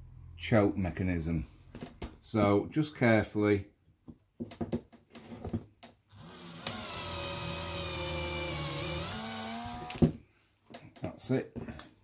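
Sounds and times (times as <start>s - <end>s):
cordless drill motor whine: 6.1s - 10.0s.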